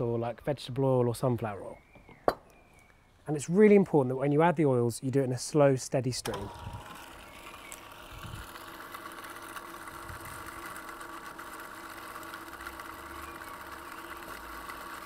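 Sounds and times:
food processor motor running: 6.3 - 15.0.

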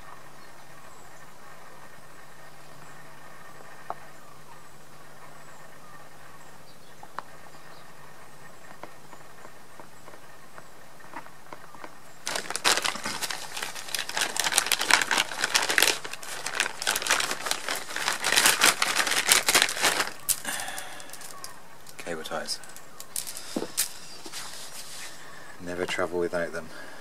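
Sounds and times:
plastic bag crinkling: 12.2 - 25.2.

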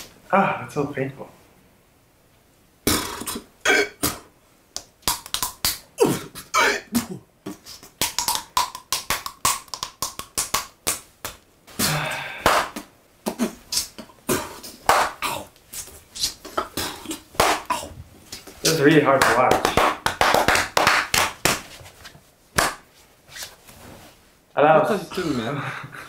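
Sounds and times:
woman beatboxing: 2.9 - 4.3, 7.4 - 11.0, 11.9 - 15.6, 16.2 - 17.9.

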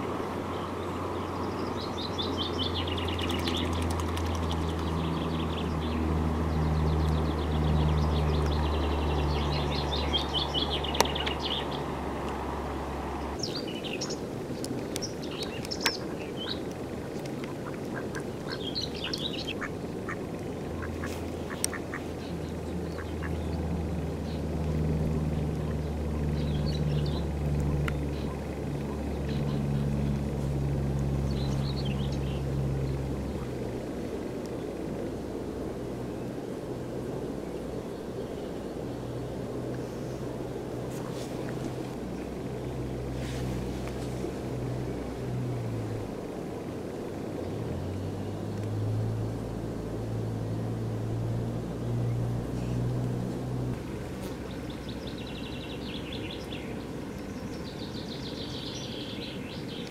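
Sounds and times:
small birds twittering: 0.0 - 59.9
steady low rumble: 0.0 - 59.9
ducks quacking: 15.9 - 23.4.

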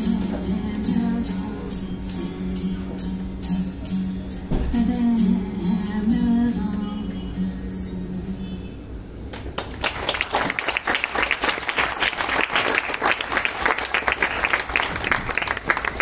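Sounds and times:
audience applause: 9.6 - 16.0.

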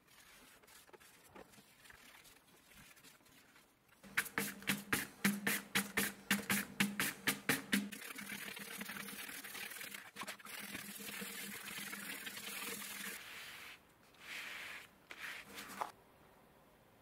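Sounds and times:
brush scrubbing leather: 0.0 - 7.9
gloved hands rubbing leather: 13.2 - 15.9.

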